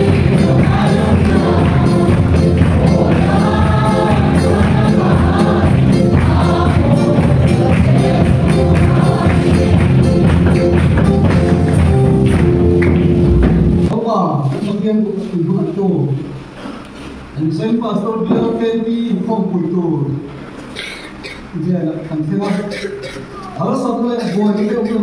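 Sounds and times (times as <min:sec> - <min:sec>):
congregation singing a hymn: 0:00.0 - 0:11.9
hand-clapping: 0:00.0 - 0:13.6
percussion beat: 0:00.0 - 0:14.0, 0:22.4 - 0:23.6.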